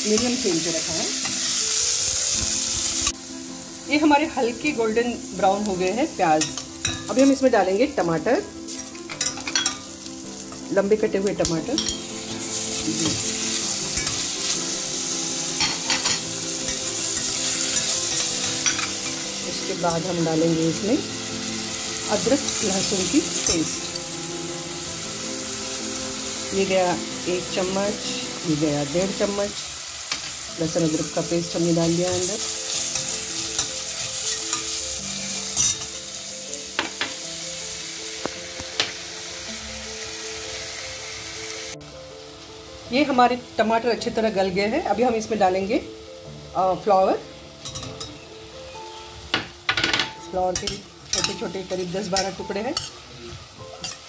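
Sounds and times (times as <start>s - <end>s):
vegetables sizzling in oil: 0.0s - 54.0s
spoon clinking against pot: 9.1s - 9.9s, 11.8s - 12.0s, 47.6s - 48.2s.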